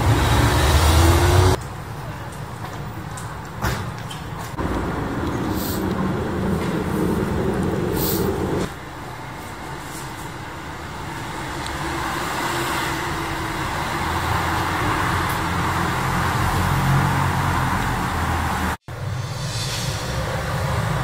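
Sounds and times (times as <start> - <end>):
street traffic noise: 0.0 - 21.0
vehicle low rumble: 4.4 - 9.2.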